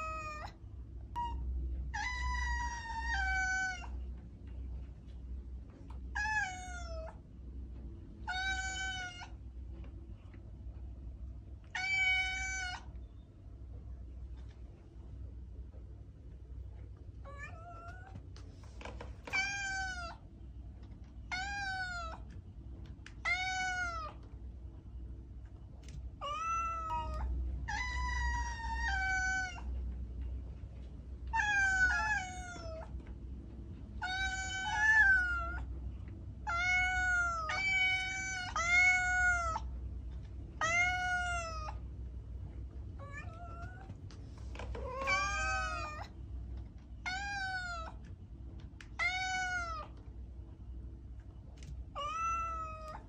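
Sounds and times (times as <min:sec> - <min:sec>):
cat meowing: 0:00.0 - 0:00.6, 0:01.2 - 0:04.0, 0:06.1 - 0:07.2, 0:08.2 - 0:09.4, 0:11.7 - 0:12.9, 0:19.2 - 0:20.2, 0:21.3 - 0:22.3, 0:23.2 - 0:24.2, 0:26.2 - 0:29.7, 0:31.3 - 0:32.9, 0:34.0 - 0:35.7, 0:36.4 - 0:39.7, 0:40.6 - 0:41.8, 0:43.0 - 0:43.9, 0:44.6 - 0:46.1, 0:47.0 - 0:48.1, 0:48.9 - 0:50.0, 0:51.9 - 0:53.0
low steady hum: 0:00.0 - 0:53.0.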